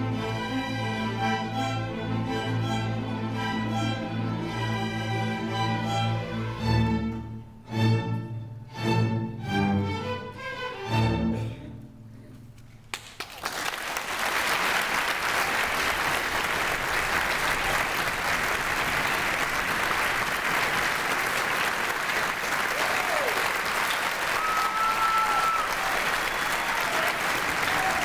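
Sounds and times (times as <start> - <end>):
string orchestra playing chords: 0.0 - 12.2
audience applauding: 12.9 - 28.0.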